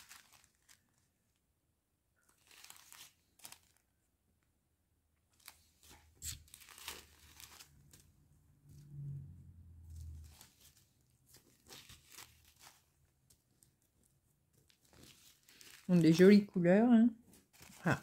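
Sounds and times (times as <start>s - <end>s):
plastic bags crinkling: 0.0s - 1.1s, 2.2s - 3.8s, 5.3s - 8.0s, 10.2s - 13.8s, 14.6s - 16.7s, 17.3s - 18.0s.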